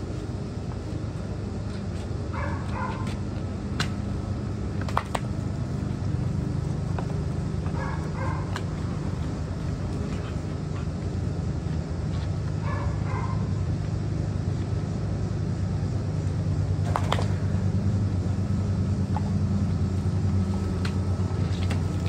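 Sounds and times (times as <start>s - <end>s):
steady low hum: 0.0s - 22.0s
dogs whining: 2.4s - 3.1s, 7.6s - 9.2s.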